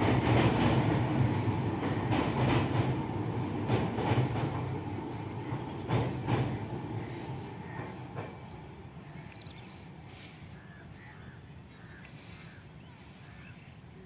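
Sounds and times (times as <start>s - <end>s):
train wheel clack: 0.0s - 9.4s
train rumbling on a bridge: 0.0s - 12.0s
bird calling: 5.4s - 14.0s.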